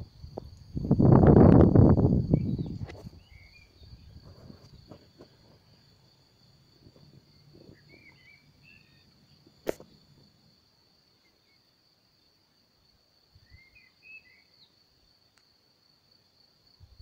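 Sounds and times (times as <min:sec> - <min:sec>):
low rumble on microphone: 0:00.0 - 0:05.1
high insect trill: 0:00.0 - 0:17.0
bird chirps: 0:02.3 - 0:04.2, 0:07.3 - 0:09.3, 0:13.4 - 0:14.8.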